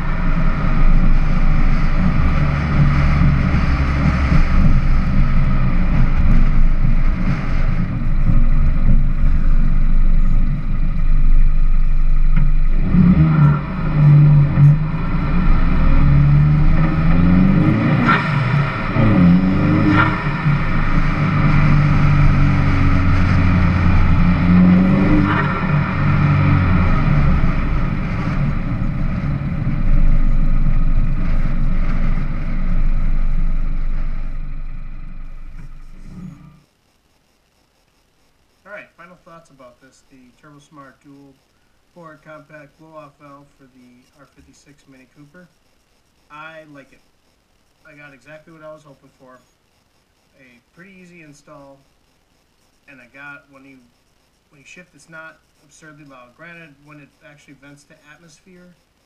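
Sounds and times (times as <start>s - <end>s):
car engine revving: 0.0s - 36.7s.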